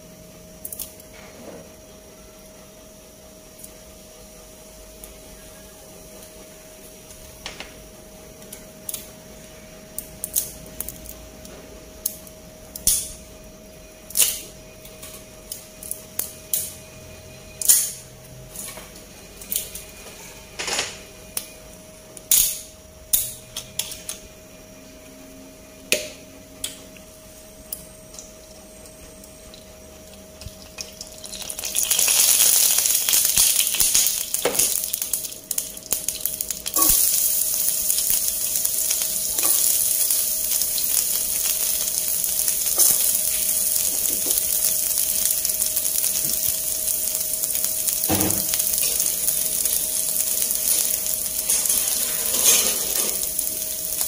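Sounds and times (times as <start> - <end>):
faint steady hum: 0.0 - 54.0
frying pan ticks and crackles: 0.6 - 1.1, 8.3 - 9.2, 9.9 - 13.2, 14.1 - 16.8, 17.6 - 18.2, 19.0 - 19.9, 27.7 - 54.0.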